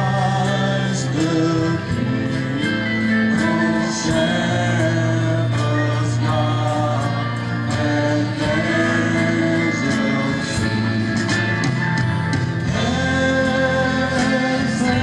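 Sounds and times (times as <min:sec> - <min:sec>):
instrumental accompaniment: 0:00.0 - 0:15.0
steady bass line: 0:00.0 - 0:15.0
mixed choir singing: 0:03.3 - 0:11.8, 0:12.6 - 0:15.0.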